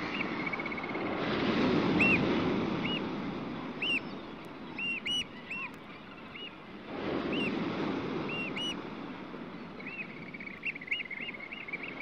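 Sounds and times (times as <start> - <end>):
surf rushing: 0.0 - 4.4.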